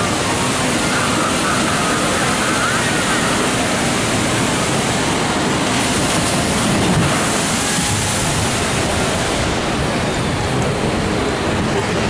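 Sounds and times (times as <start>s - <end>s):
churning whitewater rushing: 0.0s - 12.0s.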